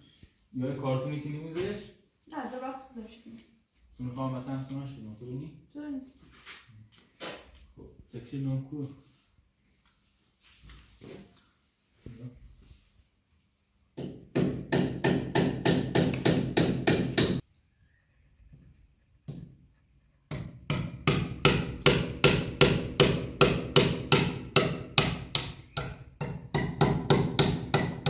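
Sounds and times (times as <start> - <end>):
hammer striking nail: 14.0 - 17.4, 20.3 - 28.0.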